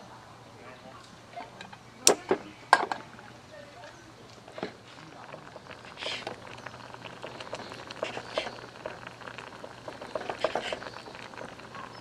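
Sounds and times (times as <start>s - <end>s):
short scraping hiss: 5.9s - 6.4s.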